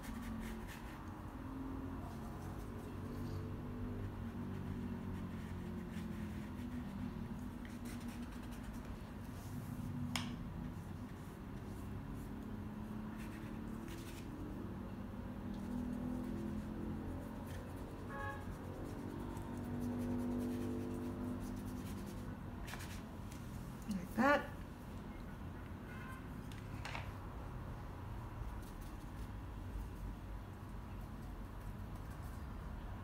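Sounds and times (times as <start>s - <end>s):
paintbrush stroking paper: 0.0s - 1.1s, 4.0s - 10.0s, 10.7s - 14.6s, 15.5s - 24.2s, 28.4s - 32.6s.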